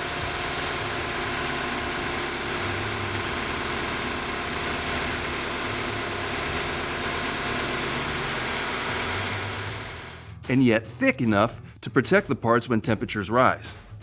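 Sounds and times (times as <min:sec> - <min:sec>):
mechanical whine: 0:00.0 - 0:10.3
diesel engine running: 0:00.0 - 0:10.5.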